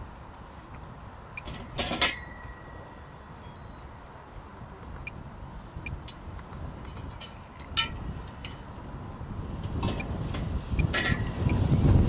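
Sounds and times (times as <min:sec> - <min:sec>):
wind buffeting microphone: 0:04.4 - 0:12.0.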